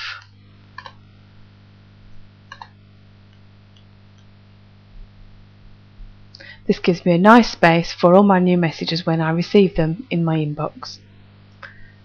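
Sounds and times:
low electrical hum: 0.0 - 12.0
computer mouse clicks: 0.8 - 1.0, 2.5 - 4.3.

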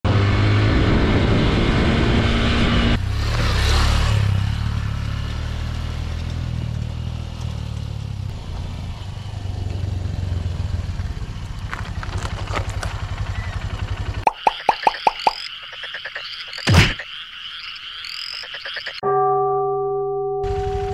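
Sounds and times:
dirt bike engine running: 3.0 - 17.0.

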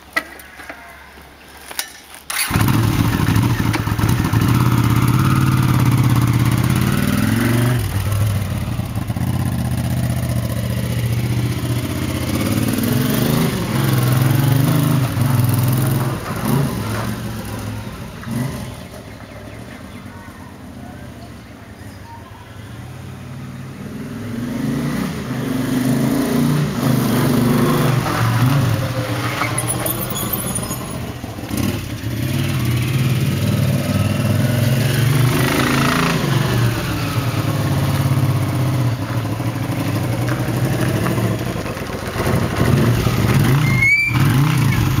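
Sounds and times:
motorcycle engine running rough: 2.3 - 19.4, 29.6 - 45.0
brief high squeal: 29.3 - 31.1, 43.6 - 44.4.

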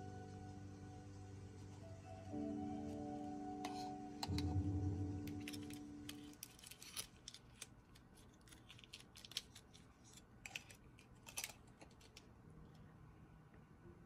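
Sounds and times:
small objects clicking and scraping: 5.3 - 12.3.

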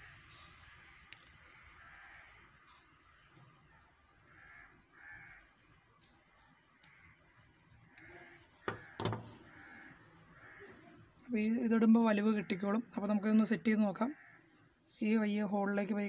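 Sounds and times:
faint fiddling with metal parts: 5.3 - 11.0
bird calling: 6.8 - 11.1.

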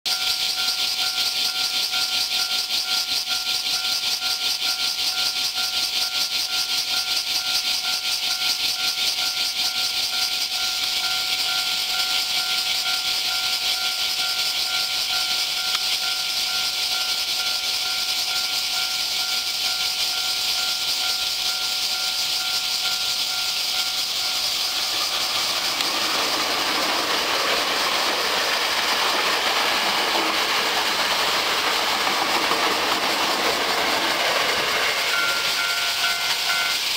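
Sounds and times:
electric train rushing past: 0.1 - 36.9
high hiss: 0.1 - 36.9
level crossing bell ringing: 34.5 - 36.9.

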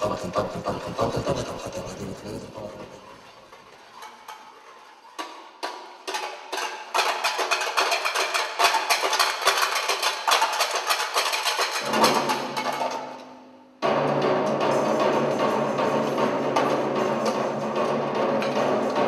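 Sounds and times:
metal plates clattering: 0.6 - 19.0.

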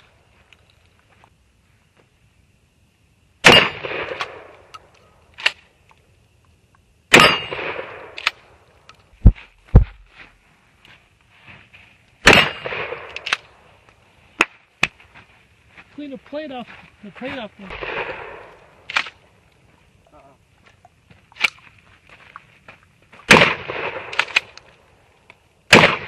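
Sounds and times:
shotgun blasts with echo: 3.4 - 4.5, 7.1 - 8.4, 12.2 - 13.4, 17.6 - 19.2, 23.3 - 24.6, 25.7 - 26.0.

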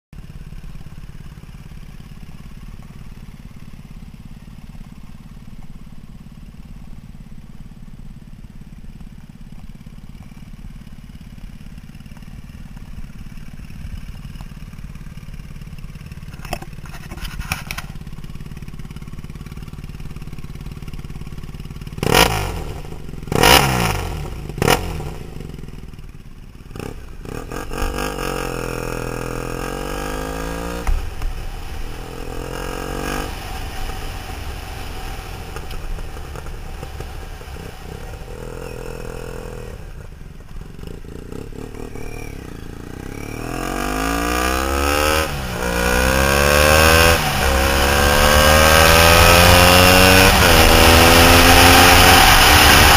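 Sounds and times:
motorcycle engine revving: 0.1 - 52.9.

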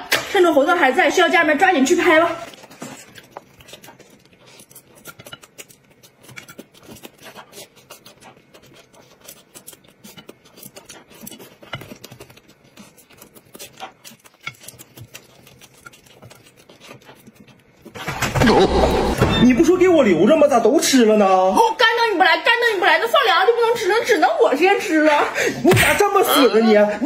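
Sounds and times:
chewing: 1.9 - 19.4.

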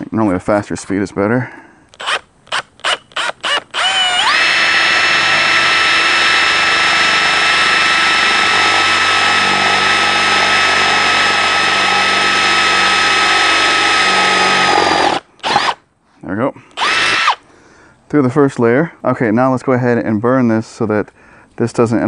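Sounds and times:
power drill whining: 1.9 - 15.8, 16.7 - 17.4.

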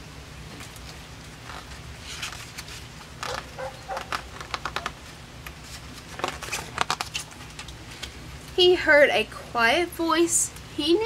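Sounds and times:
page turning: 0.6 - 8.1
book pages rustling and clicking: 0.6 - 8.2.

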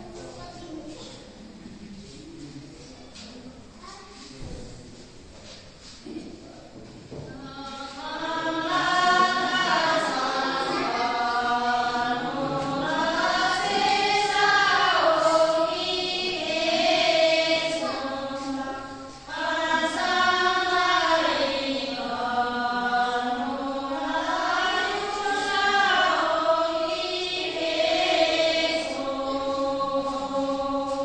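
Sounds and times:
women singing together unaccompanied: 7.1 - 31.0.

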